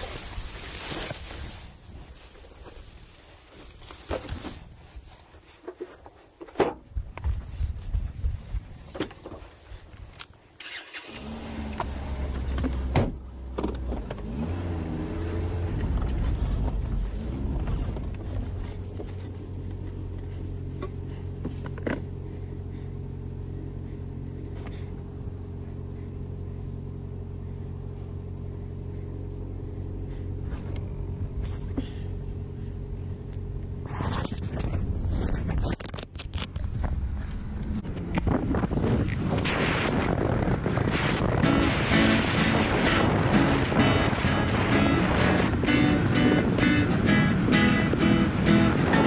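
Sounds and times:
car engine starting and idling: 10.1 - 49.0.

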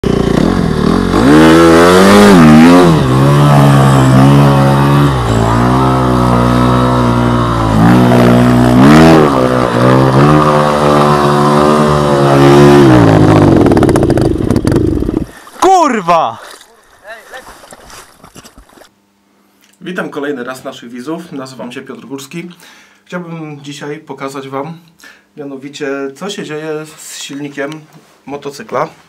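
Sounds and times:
motorbike engine revving: 0.0 - 15.4.

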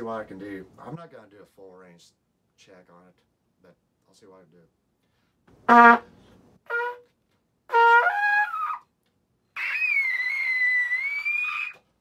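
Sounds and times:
trumpet playing high notes: 5.6 - 7.1, 7.7 - 8.8, 9.6 - 11.7.

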